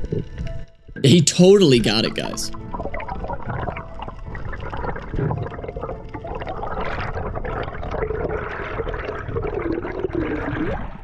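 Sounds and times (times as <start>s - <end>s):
underwater bubbling and sloshing: 2.5s - 11.0s.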